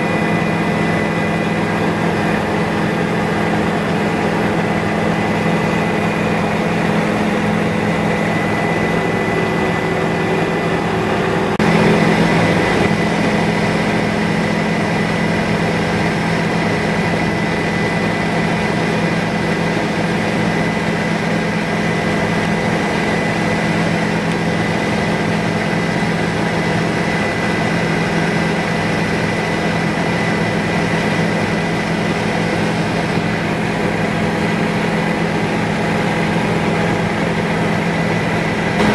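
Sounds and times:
thin high whine: 0:00.0 - 0:18.6, 0:33.9 - 0:38.9
helicopter engine and rotor drone: 0:00.0 - 0:38.9.

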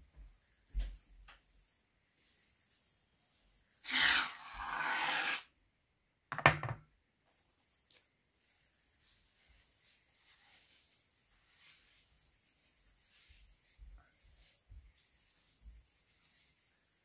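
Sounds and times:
hands rubbing hair: 0:08.4 - 0:17.0.

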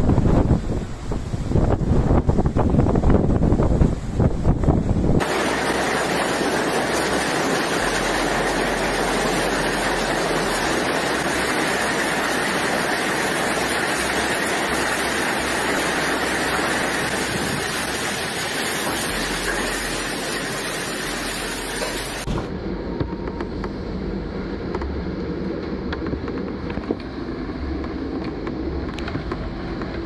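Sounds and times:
hail clattering on ground and roof: 0:05.2 - 0:22.3.

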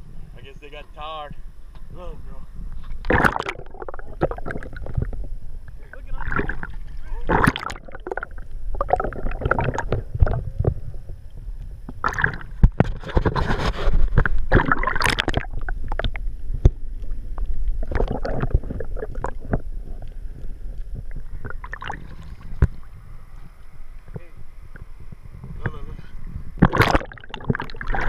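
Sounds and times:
muffled underwater rumble and gurgling: 0:01.3 - 0:28.0
underwater clicks and knocks: 0:02.8 - 0:11.2, 0:11.9 - 0:22.9, 0:26.6 - 0:28.0
water sloshing and splashing: 0:02.8 - 0:28.0.

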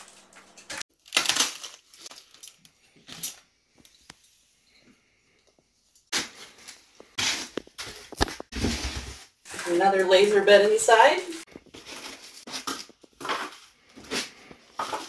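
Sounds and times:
foam scraping and rubbing: 0:07.0 - 0:15.0.

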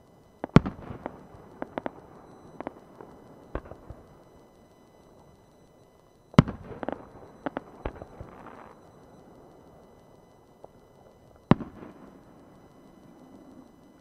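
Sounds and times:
firework pops and cracks: 0:00.4 - 0:04.1, 0:06.4 - 0:08.9.

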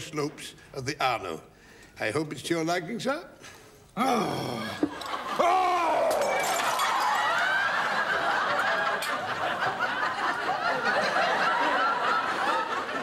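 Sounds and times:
audience laughing: 0:04.8 - 0:06.0, 0:06.9 - 0:13.0.

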